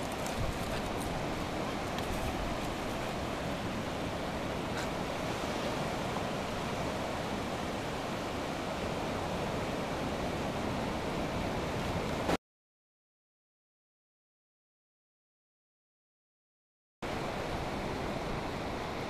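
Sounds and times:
waves breaking on a beach: 0.0s - 12.4s, 17.0s - 19.0s
wind on microphone: 0.0s - 12.4s.

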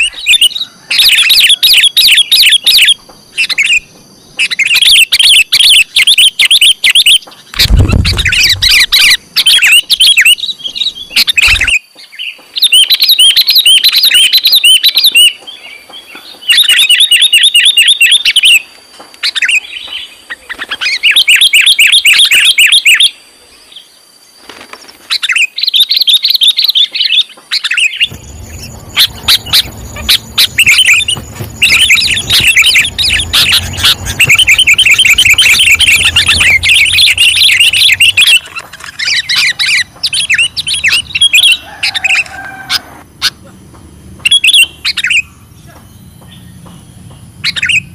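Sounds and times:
bulbul calling in rapid bursts: 4.4s - 10.4s, 28.0s - 42.2s
low thump: 7.6s - 9.0s, 28.1s - 37.9s
low hum: 28.1s - 41.4s.

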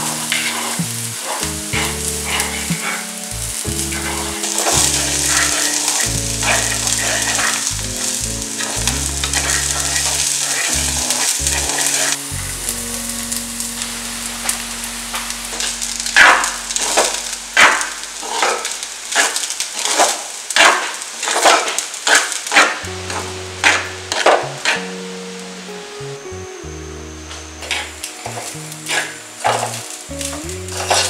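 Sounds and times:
spatula scraping rice in pan: 0.0s - 3.2s, 3.8s - 7.7s, 9.4s - 12.2s, 16.2s - 24.8s, 30.7s - 31.0s
vegetables sizzling in oil: 0.0s - 31.0s.

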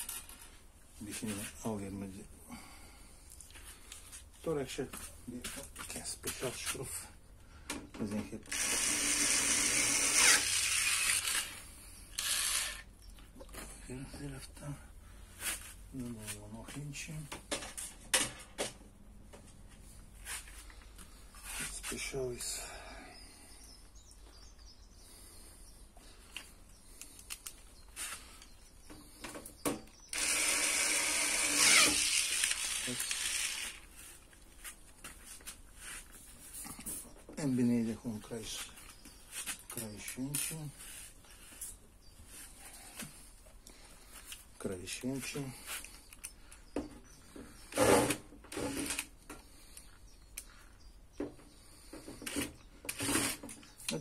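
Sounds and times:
electric screwdriver running: 8.5s - 12.8s, 30.1s - 33.8s.

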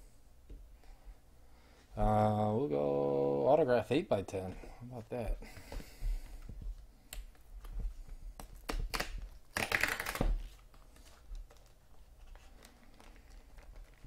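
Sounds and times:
plastic sleeve rustle: 7.6s - 14.0s.

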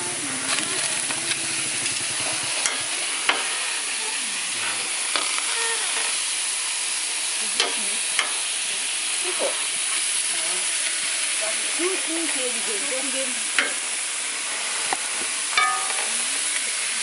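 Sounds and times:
meat sizzling in a pot: 0.0s - 17.0s
clicks and knocks in a pot: 15.6s - 16.2s.

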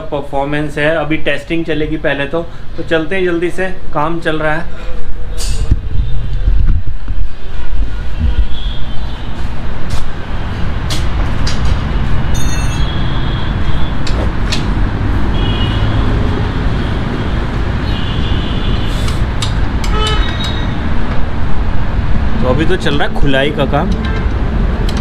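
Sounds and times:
metal tools clinking: 12.4s - 12.9s.

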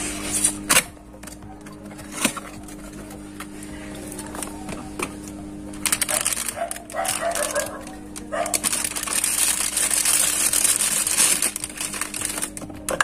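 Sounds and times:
cardboard rustling: 4.1s - 13.0s.

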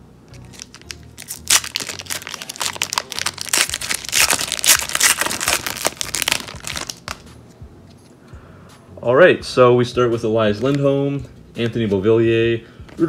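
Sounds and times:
foil pack tearing and crinkling: 0.4s - 7.2s.

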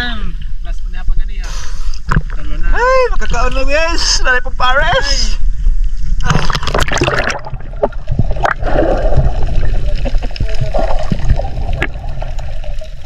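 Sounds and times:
muffled underwater rumble: 4.7s - 13.0s
water gurgling: 6.1s - 13.0s.

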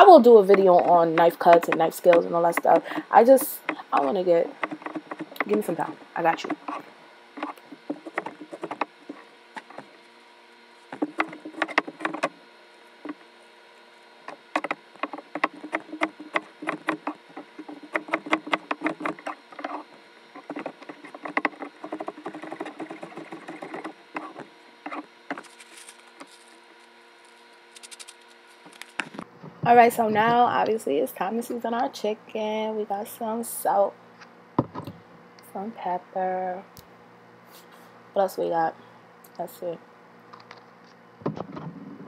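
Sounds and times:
knife chopping on plastic board: 0.5s - 6.8s, 14.3s - 19.8s.

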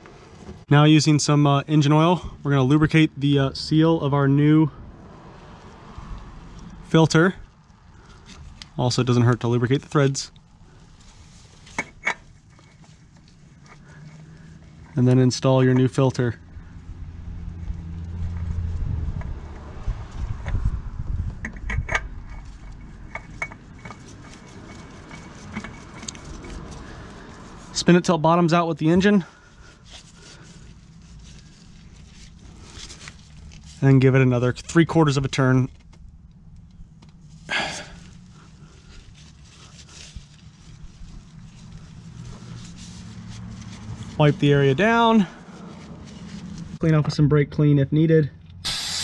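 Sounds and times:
oil filter clicking and rubbing: 7.4s - 16.7s, 20.4s - 27.8s, 29.5s - 33.9s, 35.6s - 44.6s
faint rustling: 10.3s - 15.3s, 29.3s - 34.0s, 35.7s - 44.2s.

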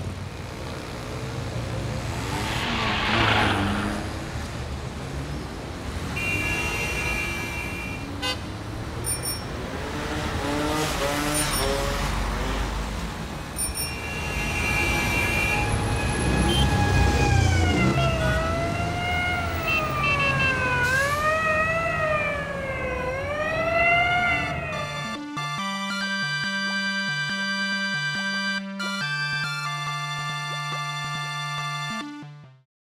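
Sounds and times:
road traffic: 0.0s - 32.4s
emergency vehicle siren wailing: 14.8s - 32.1s.

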